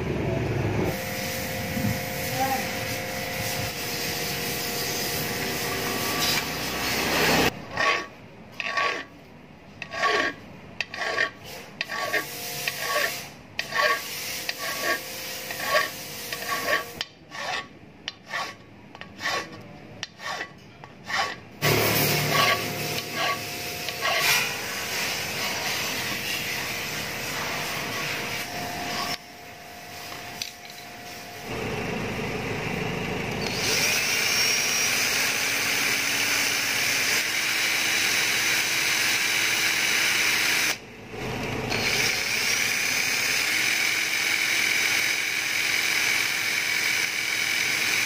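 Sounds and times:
hand file rasping on metal: 3.4 - 9.2, 9.8 - 29.2.

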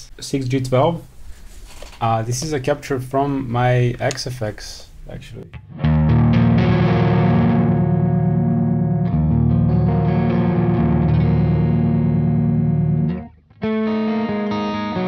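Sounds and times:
electric guitar chords ringing: 5.5 - 15.0.

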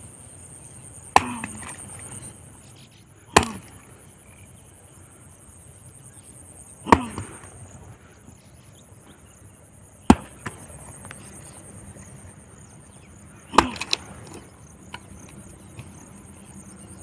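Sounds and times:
axe chopping wooden log: 1.2 - 1.9, 3.3 - 3.8, 6.9 - 7.5, 10.1 - 10.7, 13.5 - 16.0.

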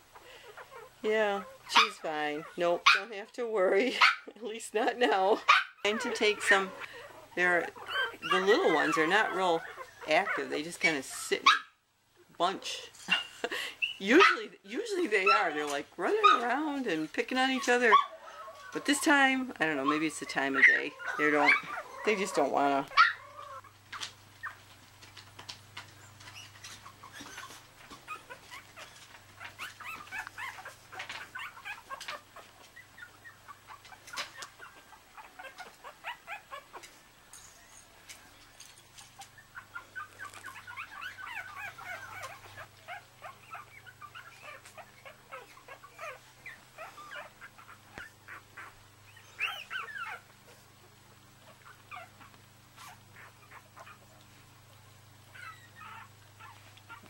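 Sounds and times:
puppies whimpering and squeaking: 0.0 - 11.6, 12.7 - 57.0
small clicks and rustles: 22.8 - 48.8, 49.4 - 57.0.

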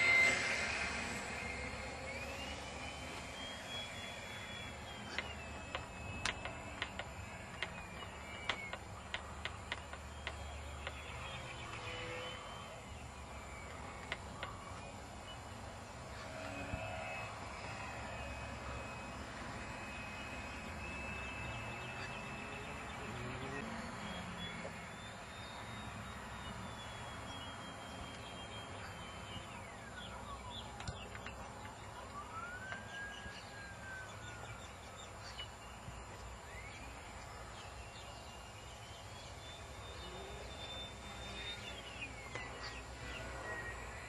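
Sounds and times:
sharp clicks: 0.0 - 11.9, 13.6 - 15.0
model plane motor whining: 0.0 - 23.8.

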